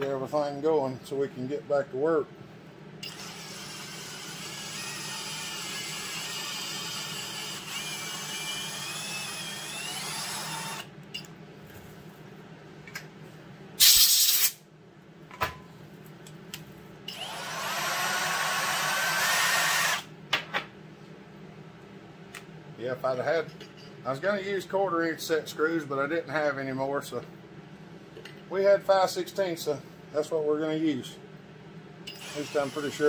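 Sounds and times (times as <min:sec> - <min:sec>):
cordless drill whining: 0:03.0 - 0:10.9, 0:17.1 - 0:20.1, 0:32.1 - 0:33.0
air blow gun blast: 0:13.8 - 0:14.6.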